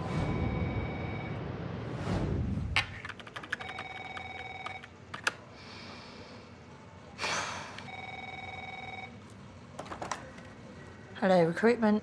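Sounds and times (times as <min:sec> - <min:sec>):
telephone ringing with warbling trill: 0:03.5 - 0:04.9, 0:07.9 - 0:09.2.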